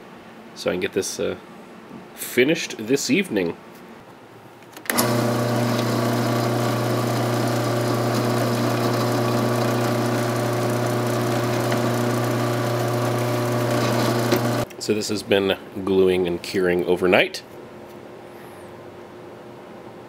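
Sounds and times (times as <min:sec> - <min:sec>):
drill bit boring antler: 0:04.9 - 0:14.6
drill press motor humming: 0:04.9 - 0:14.7.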